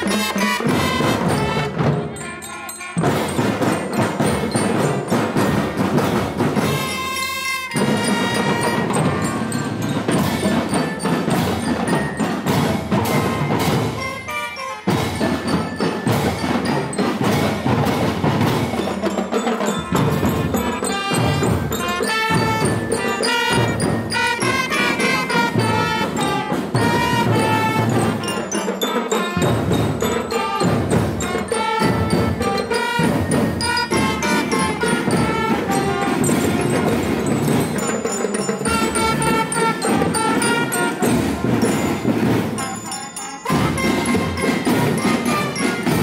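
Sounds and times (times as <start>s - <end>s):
trumpets playing: 0.0s - 3.7s, 6.6s - 9.8s, 13.3s - 15.3s, 19.7s - 38.0s, 38.6s - 46.0s
bell lyres playing quick melody: 0.0s - 46.0s.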